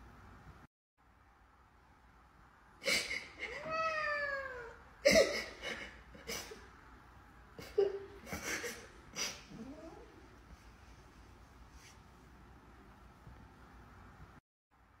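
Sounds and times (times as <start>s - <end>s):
cat meowing: 3.5s - 4.8s.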